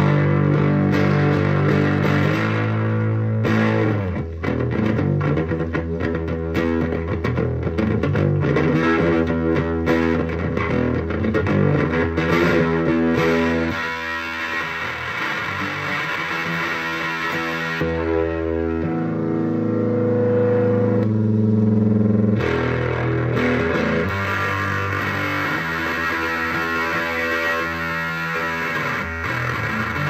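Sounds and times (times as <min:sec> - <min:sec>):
electric guitar chords and picking: 0:00.0 - 0:30.0.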